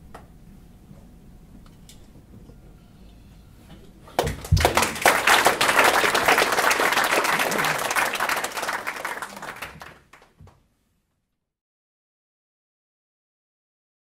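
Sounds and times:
audience applauding: 4.2 - 10.4.

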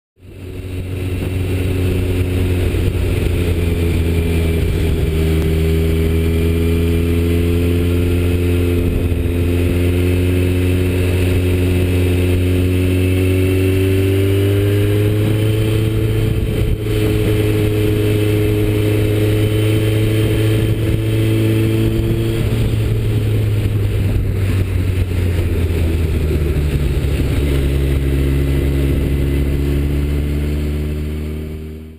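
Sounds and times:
motorcycle engine running: 0.2 - 31.9
wind and road noise: 0.2 - 31.9.

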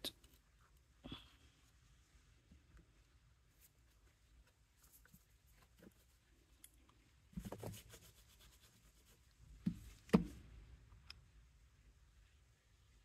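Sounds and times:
scratchy rub on tabletop: 7.4 - 9.3.

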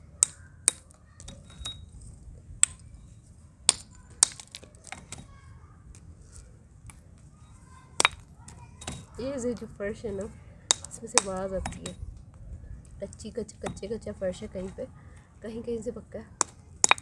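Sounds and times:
clay crunching and crumbling: 3.6 - 11.6.

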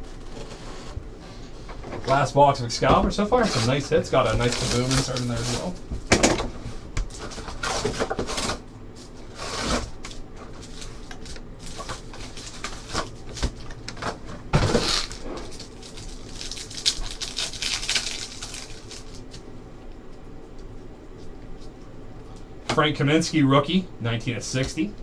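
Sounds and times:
cards and cardboard rustling: 3.4 - 5.8
plastic wrappers crinkling: 3.4 - 5.8, 9.9 - 19.5.

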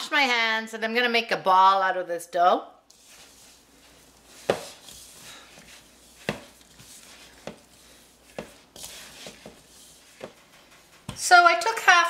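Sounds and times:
dough rustling and crumbling: 2.9 - 11.5.

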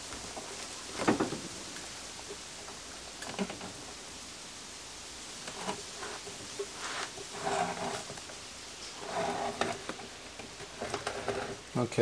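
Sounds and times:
wind hissing through open door: 0.0 - 12.0
wooden cabinet scraping on workbench: 5.5 - 8.2, 9.0 - 11.6.

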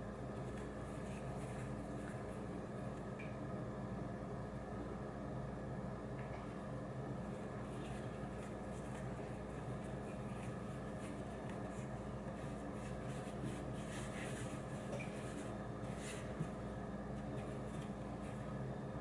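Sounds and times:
low electrical hum: 0.0 - 19.0
hands rolling bread dough: 7.2 - 18.8.

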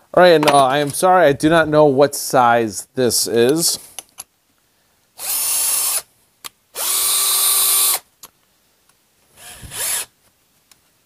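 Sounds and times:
cordless drill whirring: 5.2 - 6.1, 6.8 - 8.0, 9.4 - 10.1.

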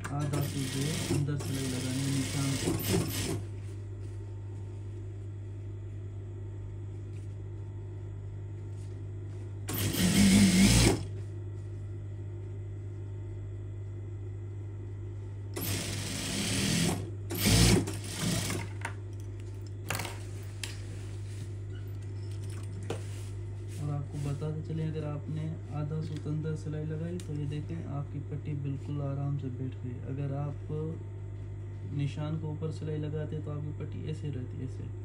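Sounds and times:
sewing machine stitching: 0.0 - 3.4, 9.7 - 11.1, 15.6 - 18.7
steady low hum: 0.0 - 35.0.

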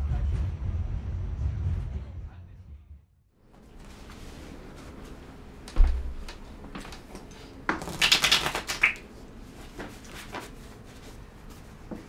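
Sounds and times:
cards being shuffled: 7.7 - 9.0.

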